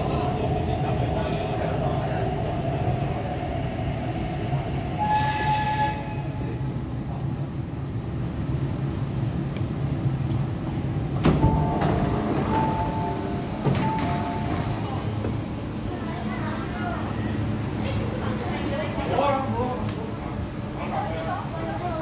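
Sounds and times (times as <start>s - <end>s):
train running gear rumble: 0.0s - 19.0s
door chime beeping tones: 11.5s - 15.0s.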